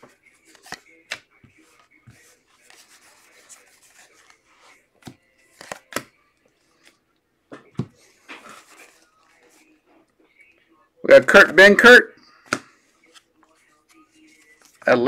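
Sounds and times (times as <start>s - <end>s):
cards rubbing: 0.0s - 7.0s
card snaps: 5.0s - 6.1s.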